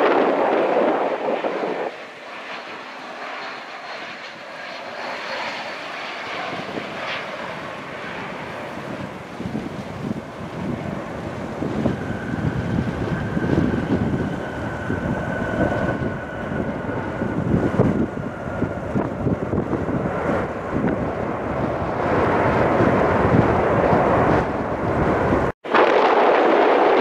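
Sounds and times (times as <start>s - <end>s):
jet engine rumble: 0.0s - 27.0s
jet engine whine: 0.0s - 27.0s
wind buffeting microphone: 0.0s - 27.0s.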